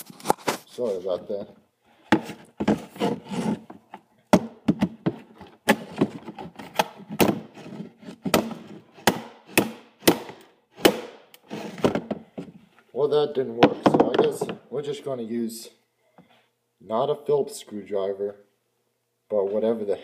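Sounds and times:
scraping and rubbing: 0.0s - 1.2s, 2.0s - 3.8s.

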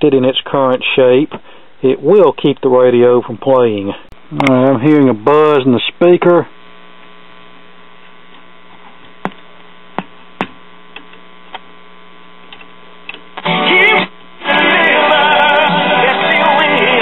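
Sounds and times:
radio tuning crackles: 3.5s - 17.0s
radio speaker buzz: 3.8s - 17.0s
broadcast singing on radio: 13.4s - 17.0s.

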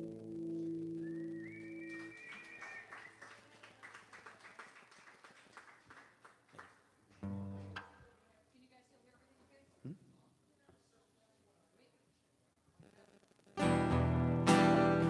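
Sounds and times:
acoustic guitar: 0.0s - 2.1s, 13.6s - 15.0s
high whistle: 0.8s - 3.3s
audience applause: 1.1s - 7.8s.

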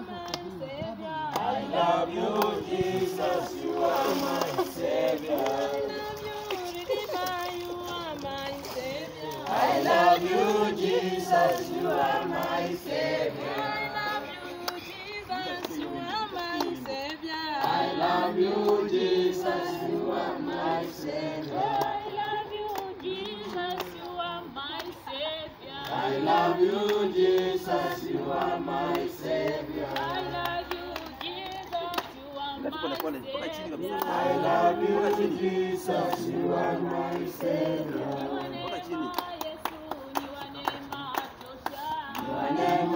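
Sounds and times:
choir of men and women singing: 0.0s - 7.2s, 8.6s - 16.8s, 17.5s - 22.5s, 25.7s - 30.8s, 32.6s - 39.0s, 42.0s - 42.9s.

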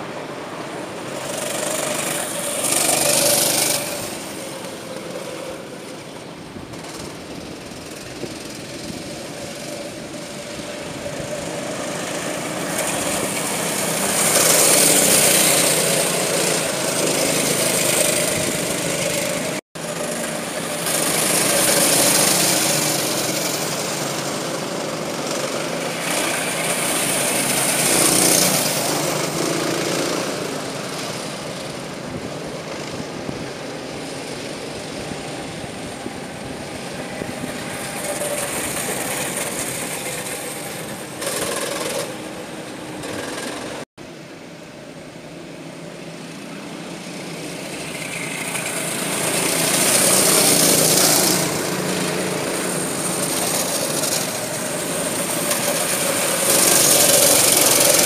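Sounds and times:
racing kart engines buzzing: 0.0s - 58.0s.

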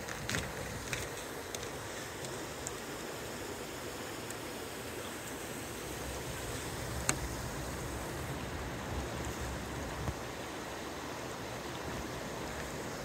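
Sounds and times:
river water rushing under ice: 0.0s - 13.0s.

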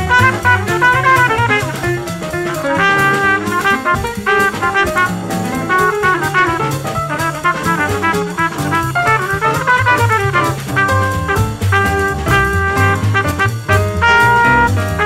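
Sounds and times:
brass horn melody: 0.0s - 15.0s
drum kit cymbals: 0.0s - 15.0s
walking bass: 0.0s - 15.0s.

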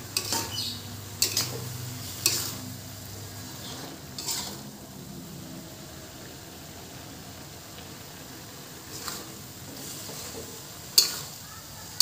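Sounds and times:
spatula scraping a wok: 0.0s - 4.8s, 8.8s - 12.0s
light sizzle: 0.0s - 12.0s.

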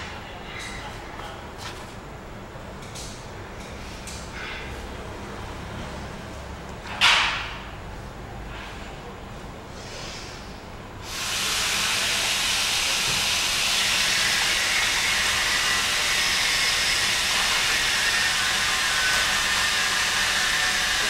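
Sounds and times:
loud steady hiss: 9.7s - 21.0s.

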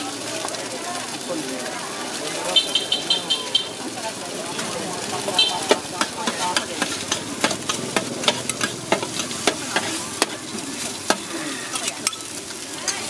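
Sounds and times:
oil sizzling: 0.0s - 13.0s
metal spatula scraping steel wok: 4.6s - 13.0s.

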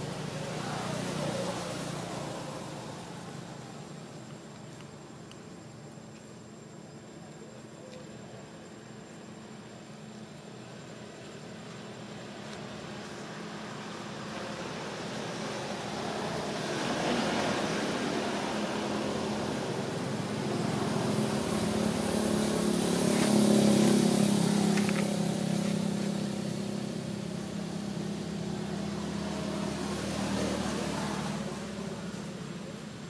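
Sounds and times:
vehicle engine passing: 0.0s - 4.2s, 11.8s - 33.0s.

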